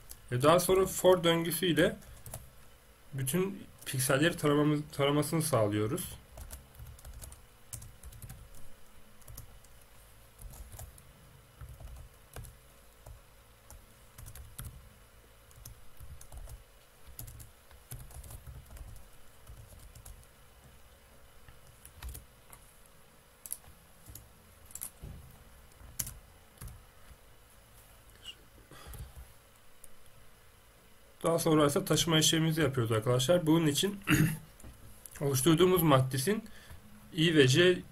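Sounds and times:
faint typing on keyboard: 0.0 - 0.3, 1.9 - 2.7, 6.3 - 14.9, 15.5 - 22.7, 23.4 - 27.2.

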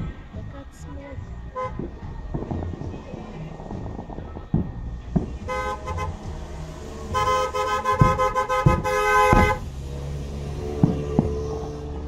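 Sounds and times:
dull firework bangs: 1.6 - 9.9, 10.5 - 12.0
two-tone car horn honking: 5.5 - 6.3, 7.1 - 9.6.

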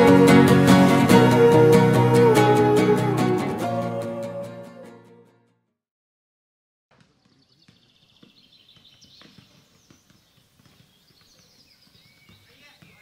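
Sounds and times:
footsteps on paved path: 6.9 - 13.0
birds chirping: 7.0 - 13.0.

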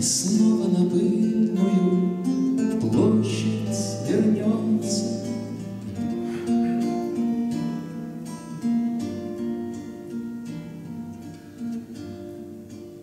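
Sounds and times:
man singing: 0.0 - 5.7
nylon-string guitar chords: 0.0 - 13.0.

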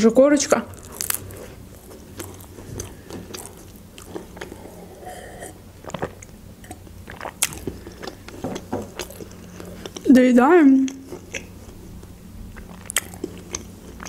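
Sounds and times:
chewing and crunching bread: 0.6 - 14.0
gulping juice: 2.0 - 10.1.

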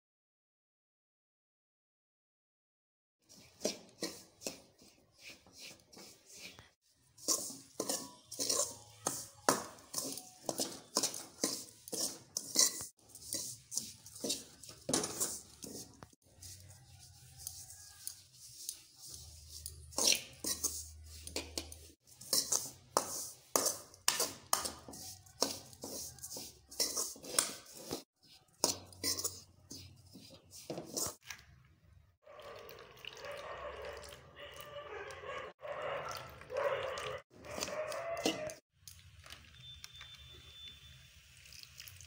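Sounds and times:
spoon scraping a metal pan: 3.3 - 31.2.

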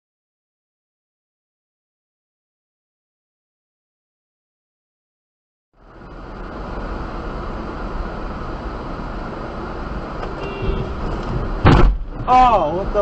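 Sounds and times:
car road and engine noise: 5.8 - 13.0
loud thump: 10.6 - 12.3.

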